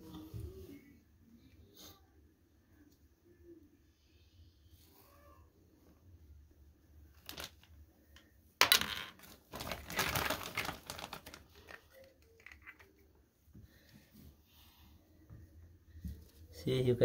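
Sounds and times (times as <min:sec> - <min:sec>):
packaging rustling: 0:07.1 - 0:07.7, 0:08.8 - 0:12.9.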